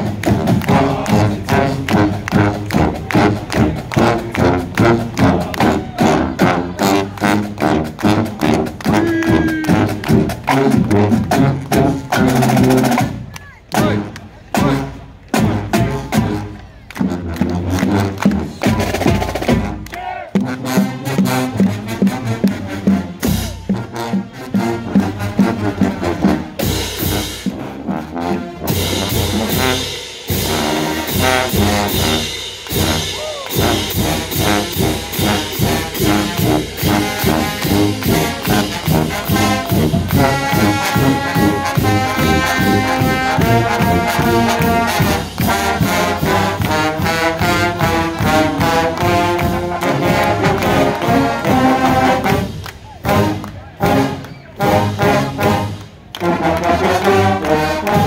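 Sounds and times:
marching band playing: 0.0 - 58.0
drums and cymbals: 20.7 - 27.9, 28.5 - 53.3.

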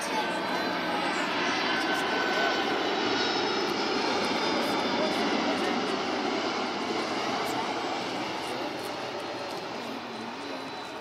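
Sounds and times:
faint high whine: 0.0 - 11.0
jet engines roaring: 0.0 - 11.0.

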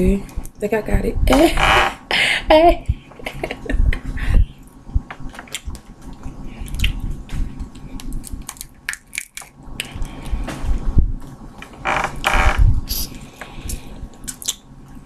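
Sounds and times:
crawfish shell cracking: 7.7 - 10.1.

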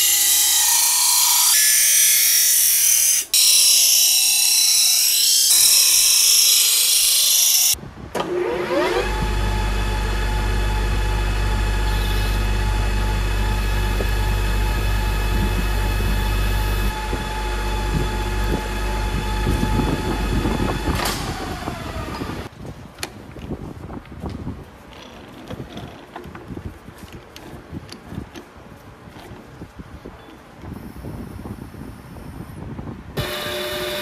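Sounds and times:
bench grinder high hiss: 0.0 - 7.8
metal lathe humming and whining: 0.0 - 7.8, 8.4 - 22.5, 33.2 - 34.0.

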